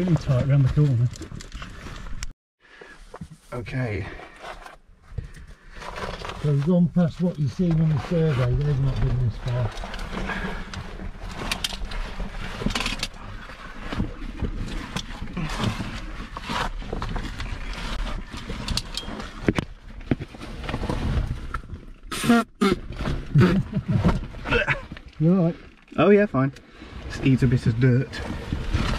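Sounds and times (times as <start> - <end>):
gear scraping against rock: 3.7 - 22.1, 26.8 - 28.9.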